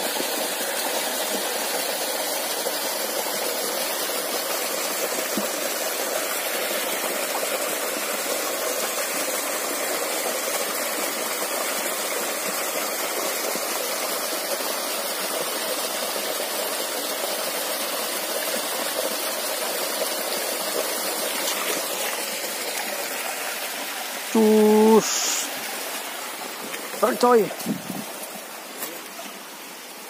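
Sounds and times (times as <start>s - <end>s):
waterfall rushing into pool: 0.0s - 30.0s.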